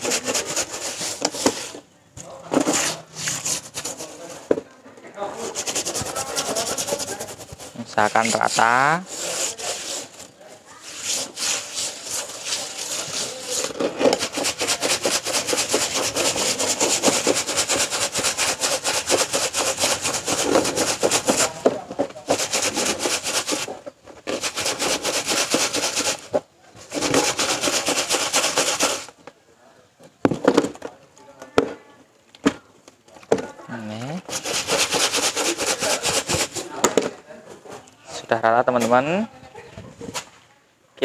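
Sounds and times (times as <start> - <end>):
broom scratching plastic tub: 0.0 - 4.6, 5.2 - 29.2, 33.8 - 37.1.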